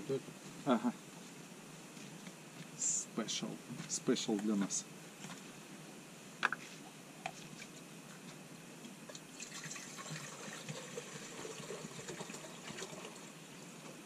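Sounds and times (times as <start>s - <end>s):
water pouring into a pot: 9.3s - 13.3s.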